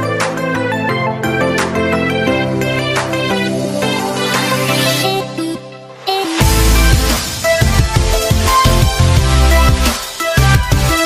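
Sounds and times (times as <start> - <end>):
electronic music: 0.0 - 11.0
heavy bass and drum beat: 6.2 - 11.0.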